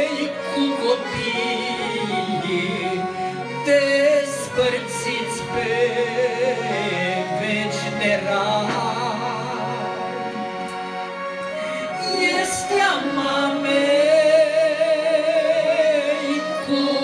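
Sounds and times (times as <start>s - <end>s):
electronic keyboard accompaniment: 0.0s - 17.0s.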